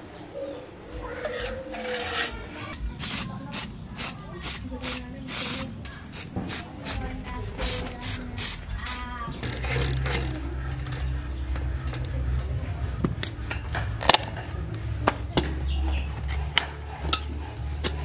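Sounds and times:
steady low hum: 3.6 - 18.0
metallic clicks of bicycle parts: 9.4 - 11.1.

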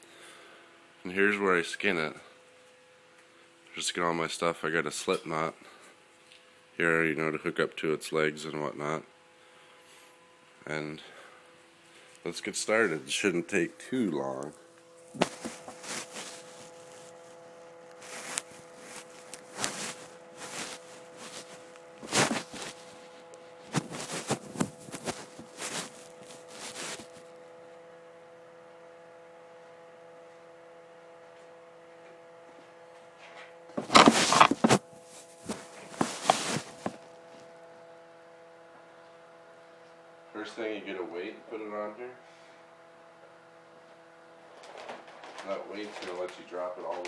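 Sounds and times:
steady electrical hum: 0.0 - 47.0
phone rubbing against body: 15.0 - 27.2, 33.8 - 37.4
knocks and clatter of handling: 33.8 - 34.8.

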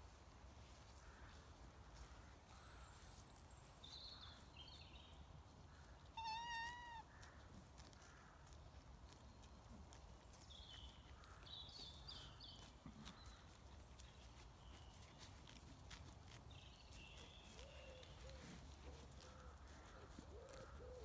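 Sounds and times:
sheep cropping grass: 0.0 - 4.5, 5.2 - 21.0
small birds chirping: 2.5 - 21.0.

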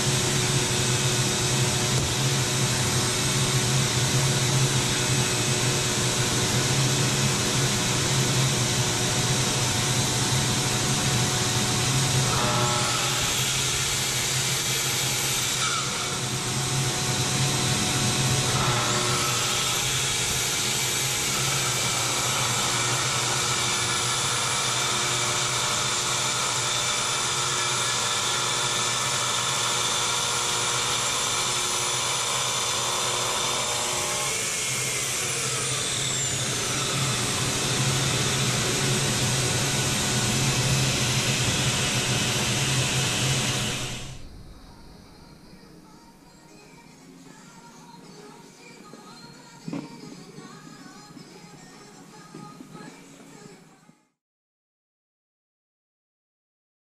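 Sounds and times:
circular saw cutting wood: 0.0 - 44.3
shop vacuum hum: 0.0 - 44.3.

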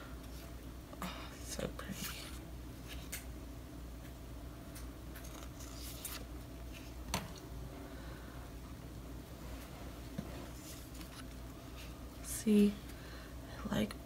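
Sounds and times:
paper sticker sheets rustling: 4.7 - 7.1, 10.5 - 11.9.

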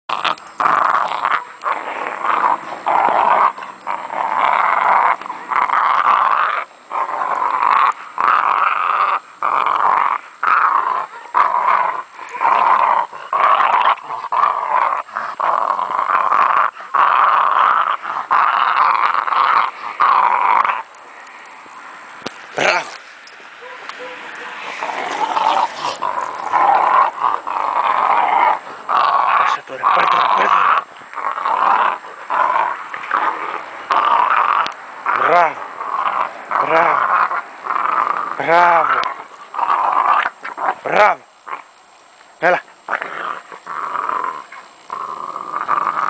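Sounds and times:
puppy growling: 0.1 - 21.5, 22.4 - 41.7, 42.4 - 46.0.

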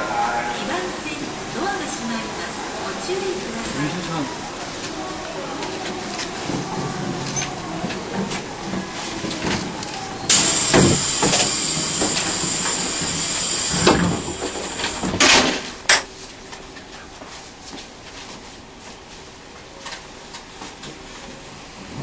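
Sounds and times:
stationary train hum: 0.0 - 22.0
compressed air hiss: 10.3 - 15.2.

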